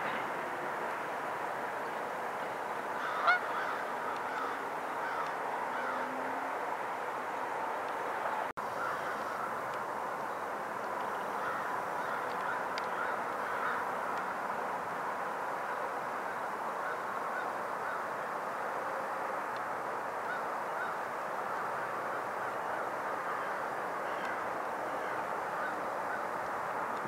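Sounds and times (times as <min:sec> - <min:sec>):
geese honking: 0:02.7 - 0:06.6, 0:11.2 - 0:14.2, 0:20.2 - 0:27.0.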